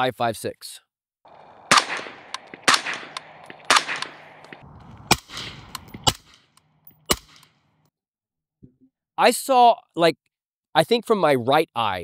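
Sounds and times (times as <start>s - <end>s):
suppressed rifle shots: 1.3s - 7.6s.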